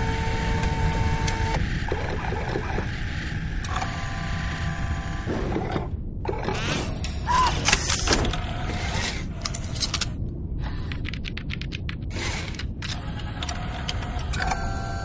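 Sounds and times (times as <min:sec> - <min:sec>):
mechanical clicks and servo movements: 0:03.6 - 0:04.2, 0:12.1 - 0:15.0
rapid clicks: 0:10.9 - 0:14.5.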